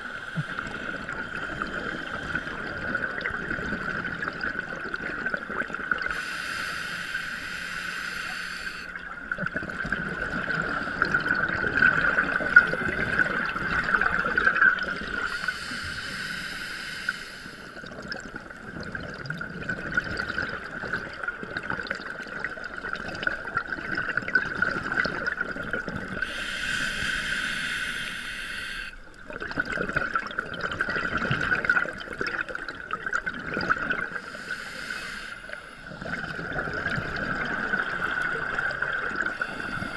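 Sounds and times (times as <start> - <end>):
bubbles gurgling underwater: 0.0 - 6.2, 9.0 - 15.3, 17.8 - 26.2, 29.2 - 34.2, 35.9 - 39.9
regulator hiss: 6.1 - 9.0, 15.2 - 17.8, 26.2 - 29.1, 34.2 - 35.8.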